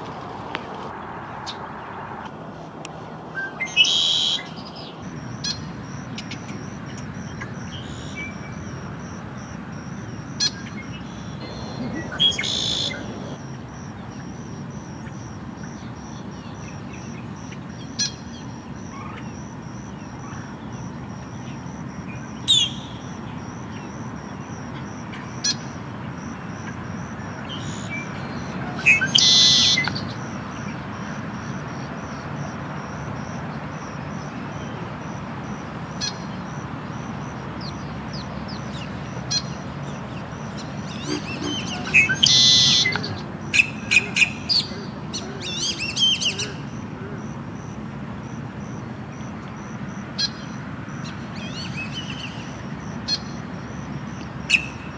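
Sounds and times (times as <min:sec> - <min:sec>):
blackbird calling: 0:10.4 - 0:13.4, 0:27.5 - 0:30.2, 0:40.6 - 0:46.6.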